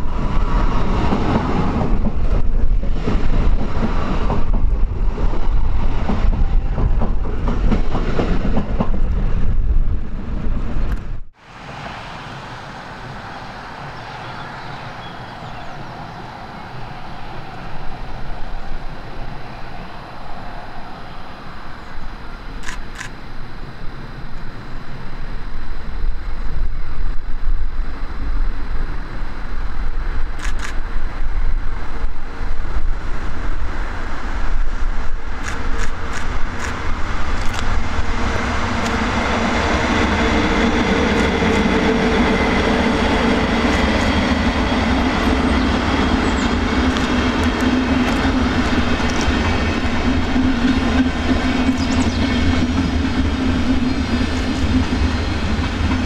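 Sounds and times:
passenger train rumbling past: 0:00.0 - 0:56.0
train wheels rolling on track: 0:00.0 - 0:56.0
sharp clicks: 0:22.6 - 0:23.2, 0:35.4 - 0:36.8, 0:37.4 - 0:37.7.

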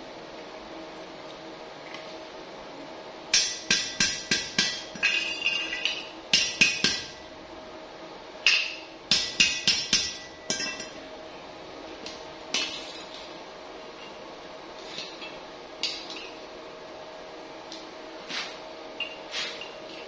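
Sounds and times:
hammer striking steel pipe: 0:03.3 - 0:07.2, 0:08.5 - 0:11.0.

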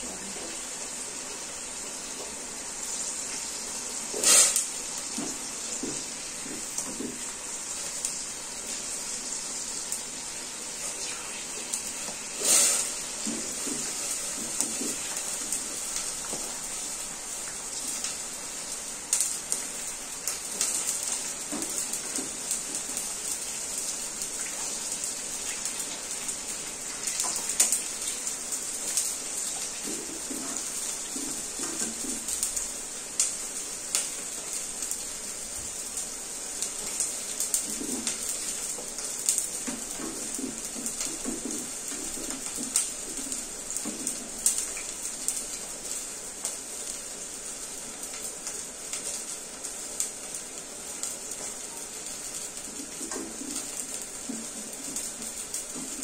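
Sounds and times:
peas sizzling in hot oil: 0:00.0 - 0:56.0.

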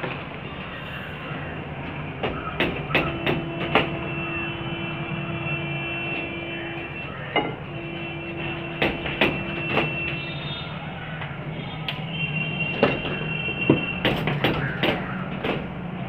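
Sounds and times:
sharp knocks and taps: 0:02.2 - 0:04.1, 0:08.4 - 0:10.2, 0:12.7 - 0:15.9.

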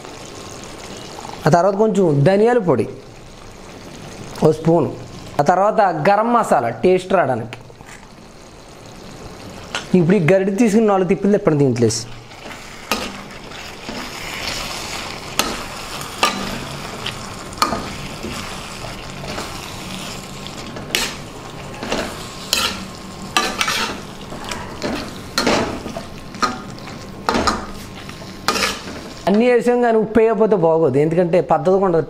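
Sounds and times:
frying sizzle: 0:00.0 - 0:30.2
metal spatula scraping a pan: 0:12.3 - 0:29.3.

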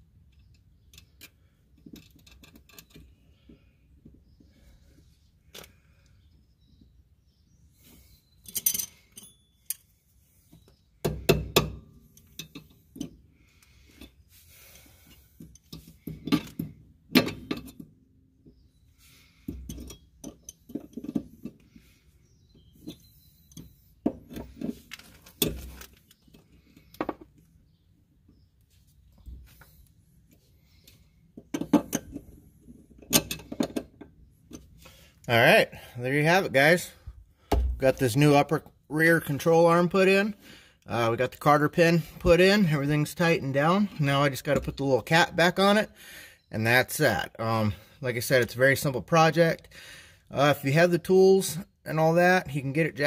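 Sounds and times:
metallic clinks and knocks of tools: 0:08.4 - 0:10.0, 0:12.1 - 0:13.2, 0:19.5 - 0:21.5, 0:22.8 - 0:25.9.

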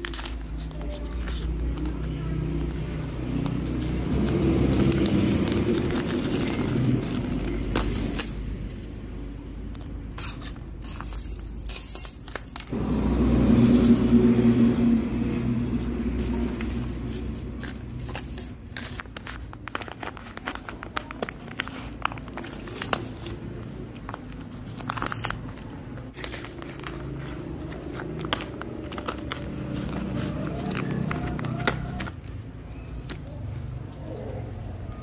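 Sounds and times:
vehicle engine running: 0:00.4 - 0:09.8, 0:12.2 - 0:19.9, 0:22.0 - 0:32.3
plastic bag crinkling: 0:03.7 - 0:07.8, 0:16.3 - 0:31.7
metal chain jangling: 0:06.1 - 0:08.4, 0:10.2 - 0:12.8, 0:16.2 - 0:19.0.

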